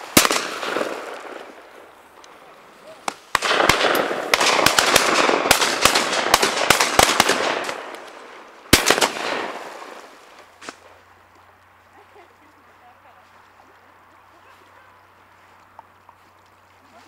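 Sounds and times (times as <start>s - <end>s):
shotgun shots echoing: 0.0s - 1.7s, 2.9s - 10.2s.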